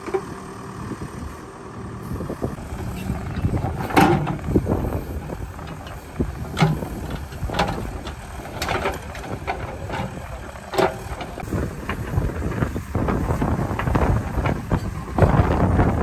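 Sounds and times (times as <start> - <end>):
diesel engine running: 0.0 - 16.0
bucket clanking and scraping: 2.8 - 4.9, 5.6 - 11.4.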